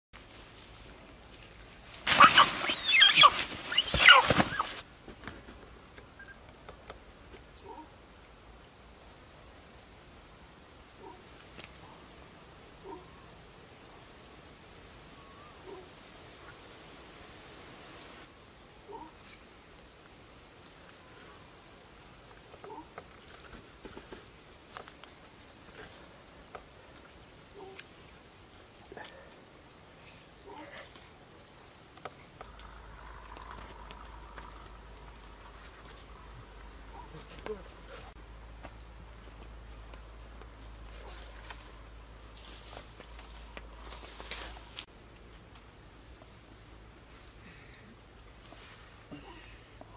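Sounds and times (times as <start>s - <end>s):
high insect drone: 0.2s - 49.9s
chicken squawking: 2.1s - 4.8s.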